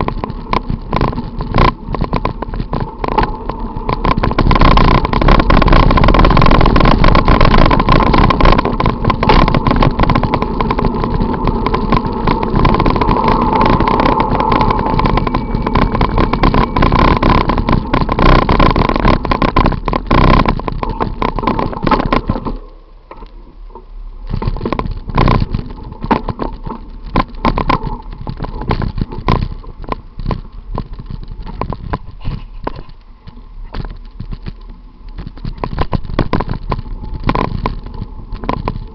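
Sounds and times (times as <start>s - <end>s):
bike mount rattling over road: 0.0s - 23.3s, 24.3s - 38.9s
steady whine: 0.0s - 38.9s.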